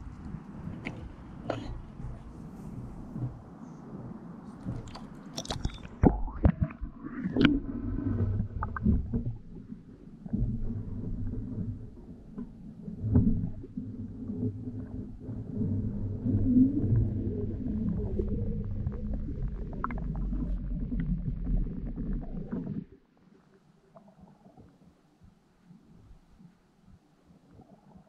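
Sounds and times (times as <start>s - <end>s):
muffled underwater rumble: 0.0s - 28.0s
camera splashing into water: 4.8s - 6.7s.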